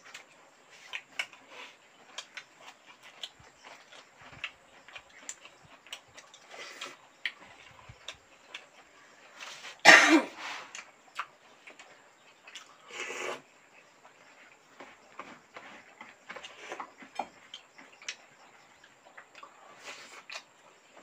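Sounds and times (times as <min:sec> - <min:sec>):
chewing and mouth clicks: 0:00.0 - 0:09.5, 0:10.7 - 0:13.4, 0:15.9 - 0:20.9
person coughing: 0:09.8 - 0:10.4.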